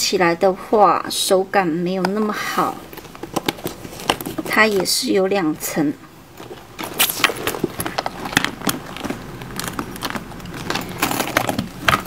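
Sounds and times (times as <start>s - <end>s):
handbag and chain strap clinking: 6.4s - 12.0s.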